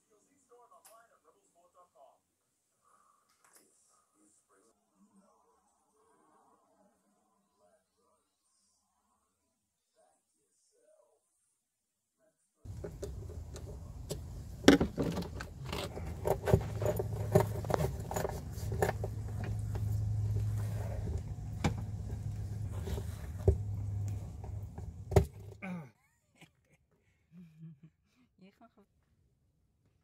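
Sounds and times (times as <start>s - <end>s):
steady low hum: 12.7s - 25.6s.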